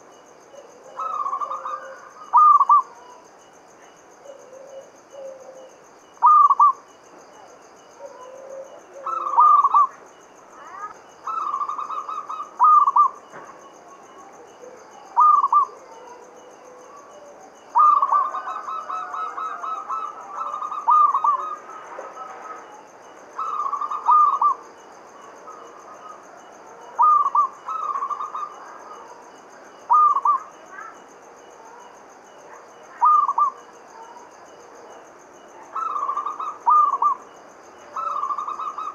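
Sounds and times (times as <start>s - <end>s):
dove cooing: 0.5s - 3.2s, 4.2s - 6.8s, 7.4s - 10.0s, 10.6s - 13.2s, 13.9s - 24.7s, 25.5s - 29.3s, 29.9s - 31.0s, 32.5s - 34.1s, 35.6s - 37.3s, 37.9s - 38.9s.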